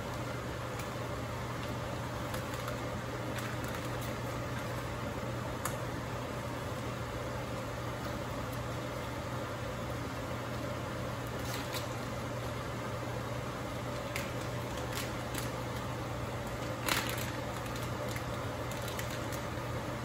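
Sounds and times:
low mechanical hum with hiss: 0.0s - 20.0s
plastic bag crinkling: 1.6s - 5.0s, 13.9s - 19.6s.

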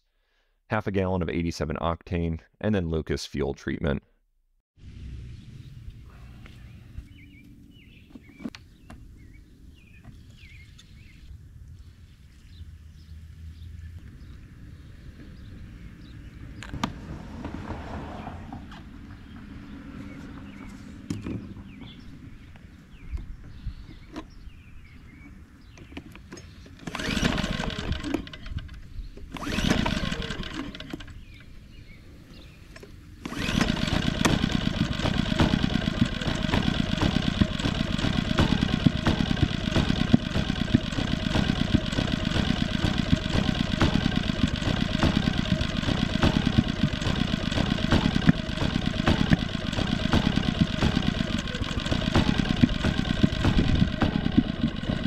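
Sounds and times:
generator engine running: 24.6s - 55.0s
recoil cord pull: 26.0s - 31.2s, 33.2s - 55.0s.

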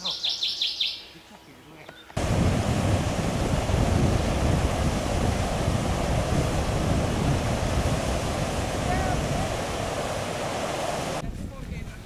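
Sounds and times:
water rushing over weir: 2.2s - 11.2s.

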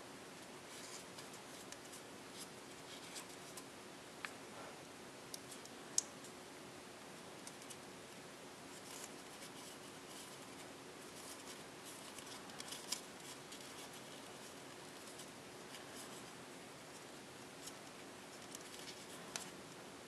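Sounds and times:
paper crinkling while folded: 8.7s - 19.6s.

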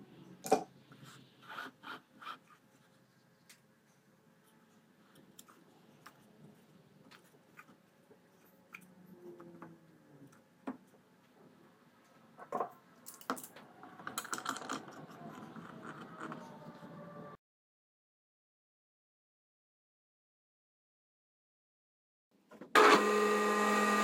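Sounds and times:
small clicks and rattles: 12.5s - 16.4s.

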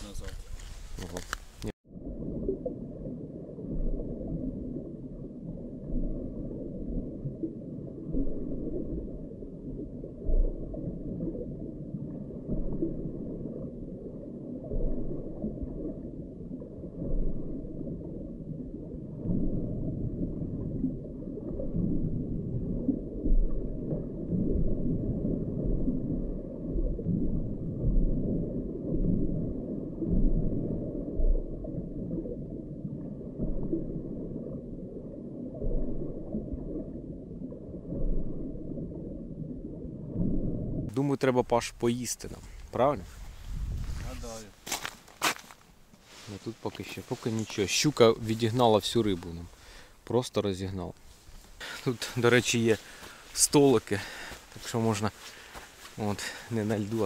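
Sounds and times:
underwater rumble and gurgle: 0.0s - 41.0s, 42.4s - 44.3s.

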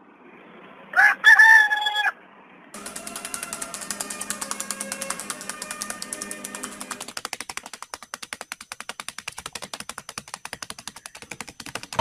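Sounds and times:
bird beak clicking on paper: 2.8s - 12.0s.

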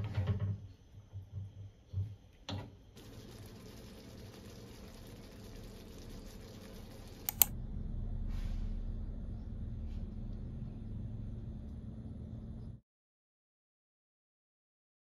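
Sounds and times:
low rumbling room noise: 2.9s - 12.8s
sharp clicks: 6.0s - 7.6s.

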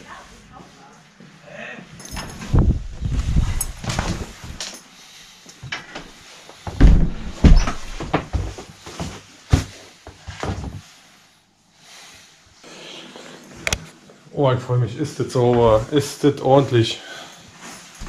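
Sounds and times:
door knocks and thuds: 6.7s - 8.5s.

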